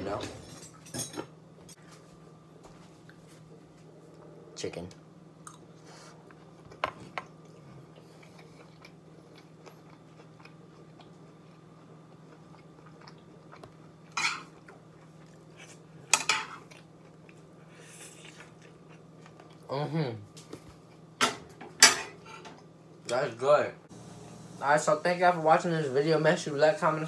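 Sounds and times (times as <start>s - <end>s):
steady low hum: 0.0s - 27.0s
person chewing food: 5.4s - 19.7s.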